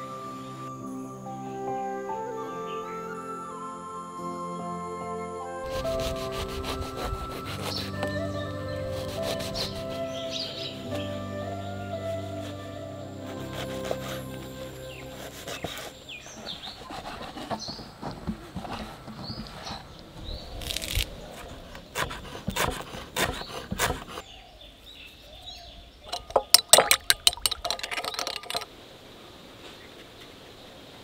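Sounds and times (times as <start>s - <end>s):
birds chirping: 5.7s - 28.6s
knife chopping on wooden board: 22.0s - 24.2s.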